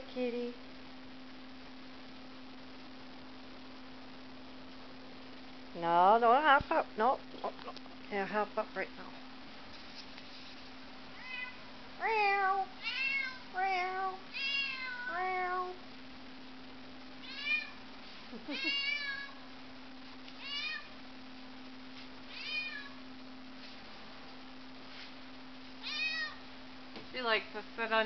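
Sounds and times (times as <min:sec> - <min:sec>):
cat meowing: 0:11.2 - 0:15.8, 0:17.2 - 0:17.8, 0:18.6 - 0:19.4, 0:20.4 - 0:20.9, 0:22.3 - 0:23.0, 0:25.8 - 0:26.4.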